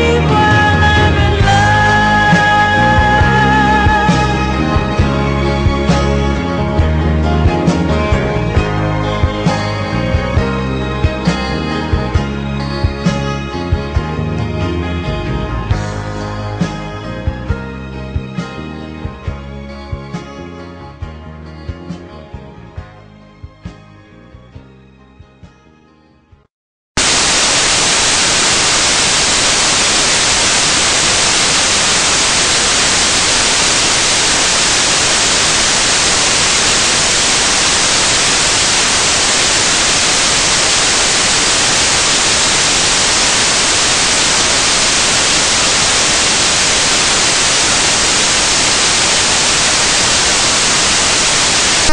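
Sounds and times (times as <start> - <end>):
static hiss: 27.0 - 51.9.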